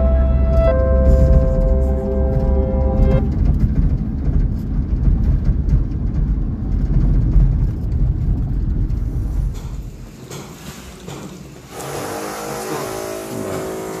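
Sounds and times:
held musical notes: 0:00.0 - 0:03.6
vehicle road and engine rumble: 0:00.0 - 0:11.8.

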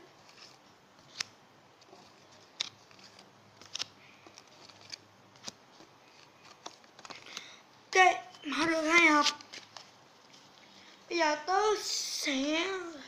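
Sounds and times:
cards snapping: 0:00.2 - 0:01.4, 0:02.1 - 0:07.5.

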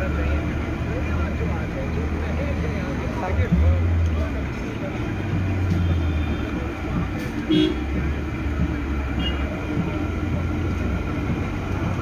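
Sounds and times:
low traffic rumble: 0:00.0 - 0:12.0
vehicle horn toot: 0:07.5 - 0:07.9, 0:09.2 - 0:09.5.

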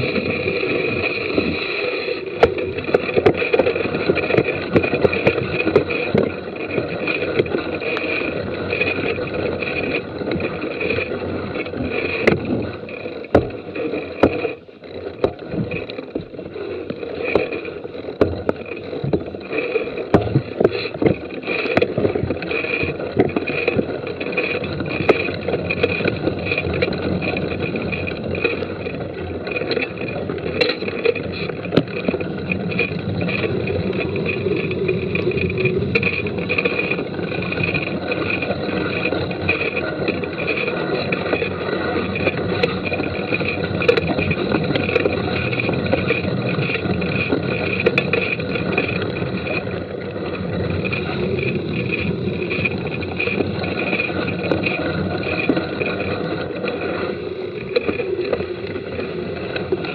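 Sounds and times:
bike tyres rumbling on dirt: 0:00.0 - 0:59.9
bike knocking over bumps: 0:14.2 - 0:14.6.

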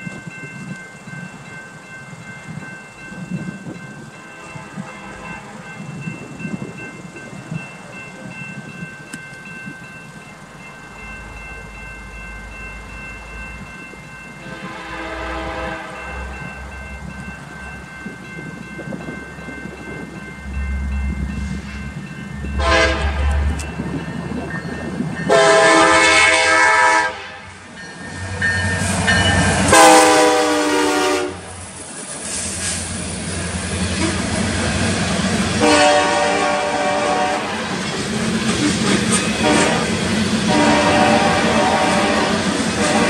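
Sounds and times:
crossing bell ringing: 0:00.0 - 0:31.8, 0:33.0 - 0:43.0
train horn blasts: 0:04.4 - 0:05.7, 0:14.4 - 0:16.3, 0:22.5 - 0:23.5, 0:25.3 - 0:27.6, 0:29.7 - 0:31.6, 0:35.6 - 0:37.8, 0:39.4 - 0:43.0.

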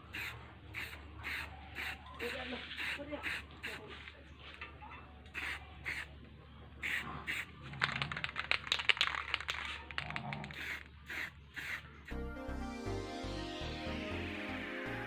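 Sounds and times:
spray can hissing spurts: 0:00.1 - 0:03.8, 0:05.4 - 0:06.1, 0:06.8 - 0:11.8.

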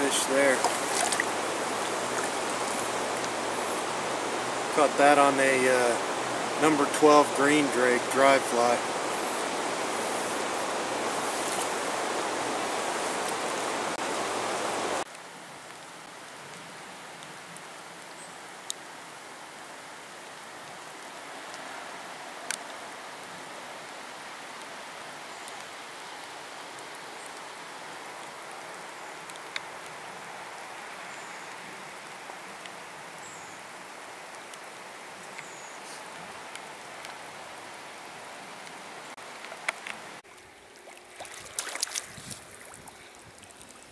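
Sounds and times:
river rushing over rocks: 0:00.0 - 0:15.0
running water: 0:00.0 - 0:15.1, 0:26.8 - 0:43.9
rain hissing: 0:00.0 - 0:16.4, 0:17.7 - 0:43.9.

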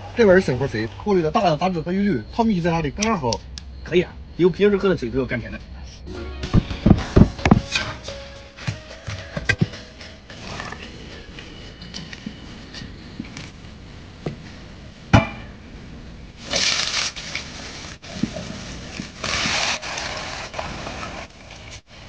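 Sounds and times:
metal pot clanking: 0:15.2 - 0:15.6.

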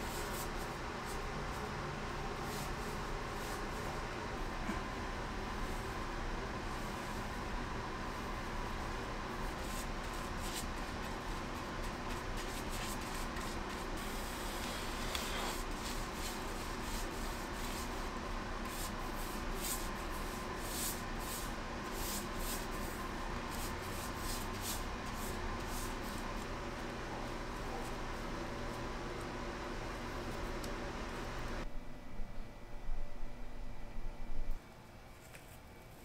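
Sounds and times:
low room hum: 0:00.0 - 0:36.0
paintbrush strokes swishing on metal: 0:05.4 - 0:28.1.

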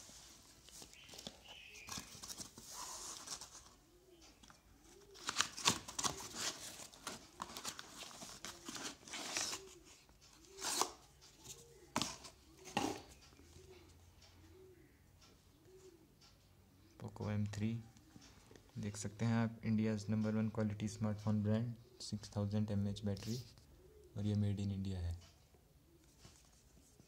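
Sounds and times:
cardboard box and paper rustling: 0:05.2 - 0:09.8.

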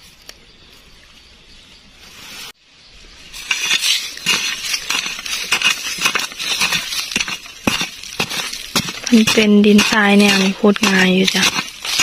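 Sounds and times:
digging in sandy soil: 0:03.3 - 0:12.0.

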